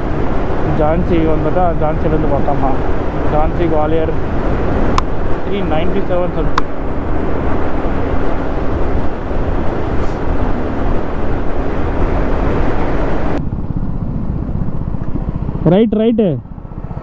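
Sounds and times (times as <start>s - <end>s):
wind rushing over microphone: 0.0s - 17.0s
motorcycle engine running: 4.2s - 17.0s.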